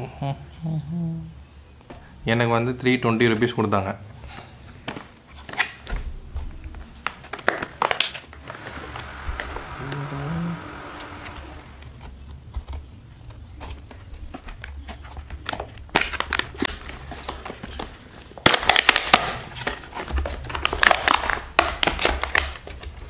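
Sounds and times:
packaging crinkling and crackling: 11.6 - 23.0.

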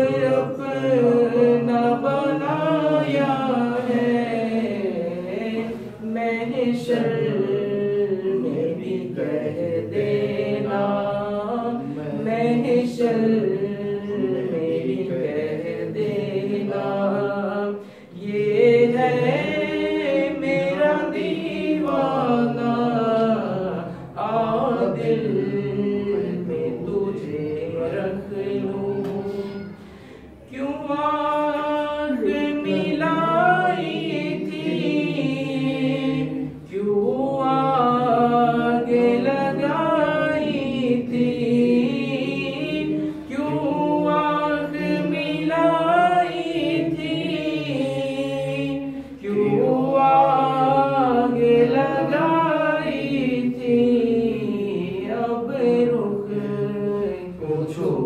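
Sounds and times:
man singing unaccompanied: 0.0 - 29.7.

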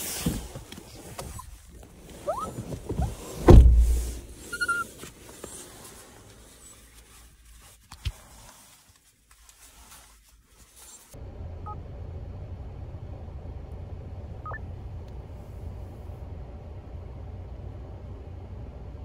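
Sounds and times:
car cabin rumble: 0.1 - 5.4.

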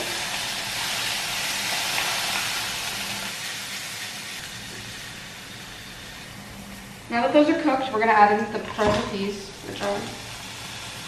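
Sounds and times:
tofu sizzling in oil: 0.0 - 11.0.

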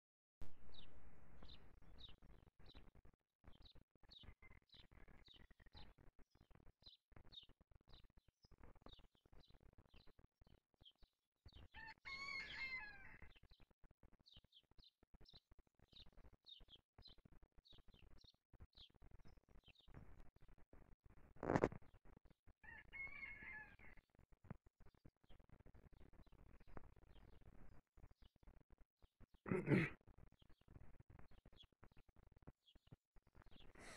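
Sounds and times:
distant rooster crowing: 11.8 - 13.3, 22.6 - 24.0
faint bird chirping: 32.6 - 33.9.

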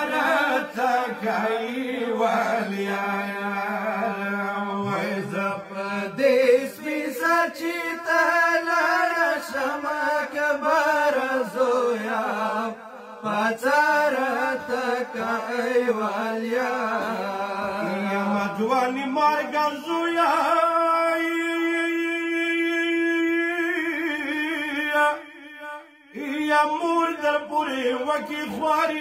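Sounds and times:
men chanting a lament: 0.0 - 29.0.

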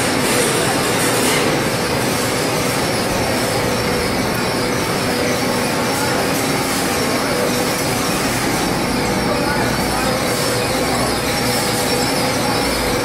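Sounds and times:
wire coating machine running: 0.0 - 13.0.

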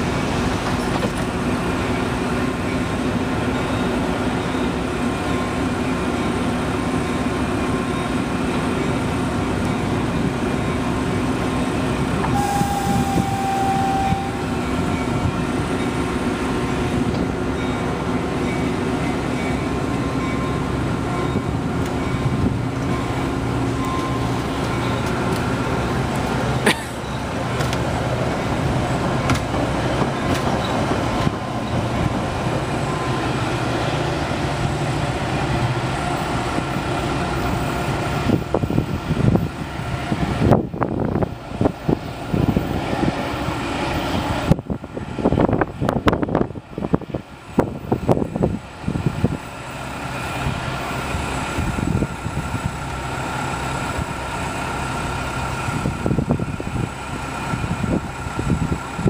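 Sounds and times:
train mechanical hum: 0.0 - 59.0
train rumbling pulling away: 0.0 - 59.0
short steady tone: 12.3 - 15.2.

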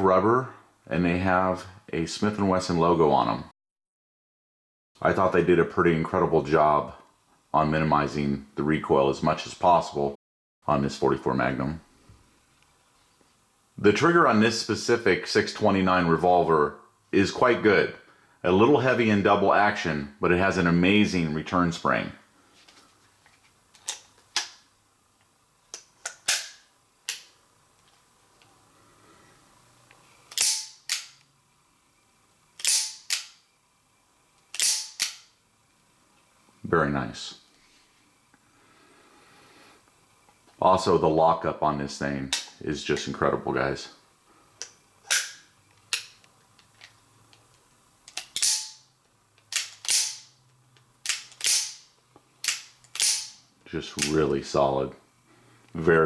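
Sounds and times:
revolver metallic snaps: 25.7 - 27.4, 30.3 - 31.3, 32.6 - 33.4, 34.5 - 35.3, 44.6 - 46.3, 48.1 - 48.8, 49.4 - 50.3, 51.0 - 53.4.

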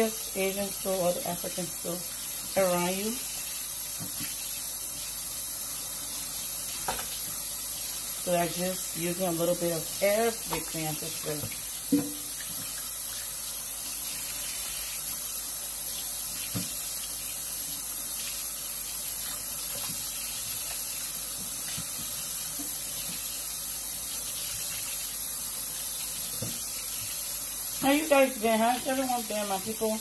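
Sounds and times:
tap running into steel sink: 11.4 - 12.3.

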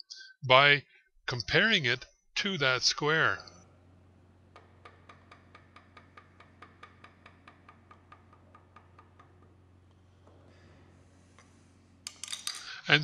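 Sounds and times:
plastic mallet tapping steel block: 4.5 - 10.0.

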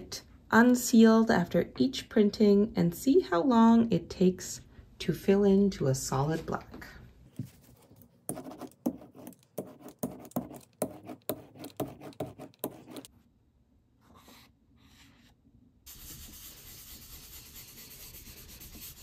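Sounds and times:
hand rubbing paper: 7.5 - 13.1, 15.9 - 19.0.

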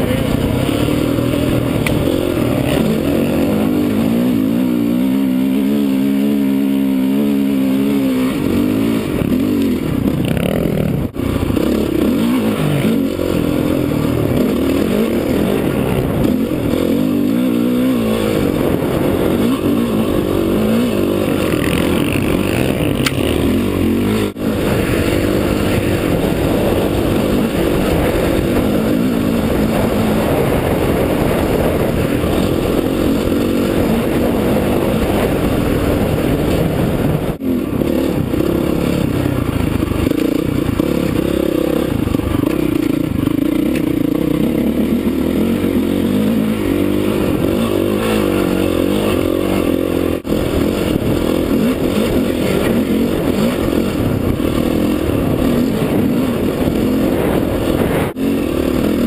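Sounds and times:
dirt bike engine under load: 0.0 - 59.0.

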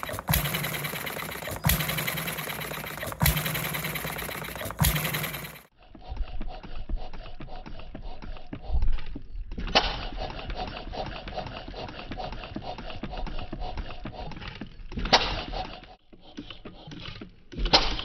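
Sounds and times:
stationary engine clatter: 0.0 - 5.8.

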